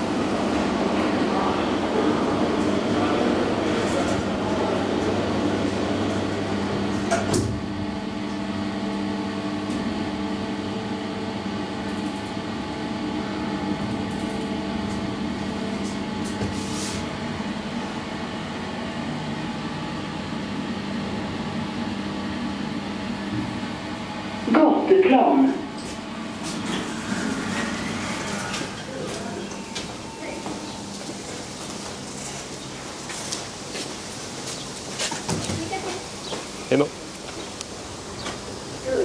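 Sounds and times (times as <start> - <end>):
elevator doors shutting: 0.0 - 8.4, 24.5 - 32.3
elevator hum: 0.0 - 39.0.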